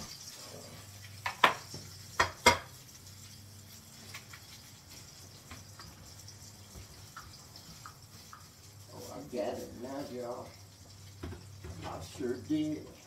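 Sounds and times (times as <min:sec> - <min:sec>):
cookware clanking: 0:01.2 - 0:02.8.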